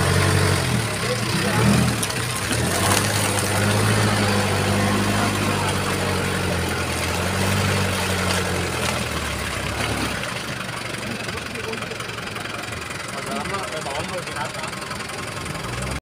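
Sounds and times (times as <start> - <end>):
engine idling low: 0.0 - 16.0.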